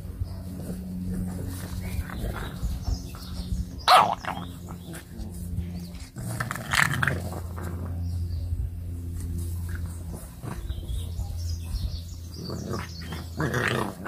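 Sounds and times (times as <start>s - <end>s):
puppies growling: 0.0s - 14.0s
puppy barking: 3.8s - 4.5s.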